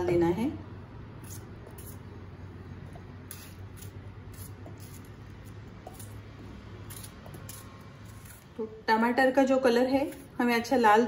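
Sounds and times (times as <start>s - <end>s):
knife slicing tomatoes: 1.2s - 8.7s.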